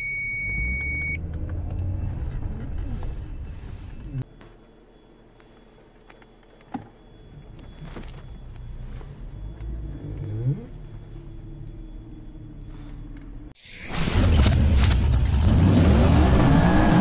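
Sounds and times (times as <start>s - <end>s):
car engine running: 6.9s - 17.0s.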